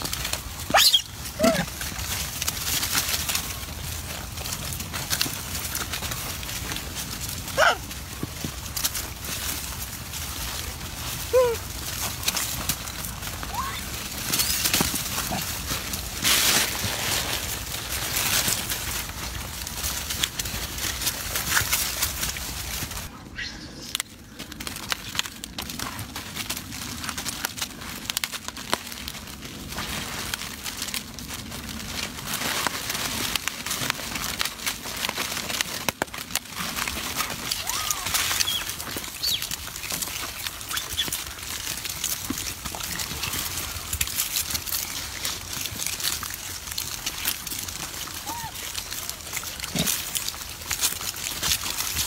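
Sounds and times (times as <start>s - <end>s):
monkeys rustling and crinkling food: 0.0s - 52.0s
monkey squeaks: 0.7s - 1.1s, 38.4s - 39.4s.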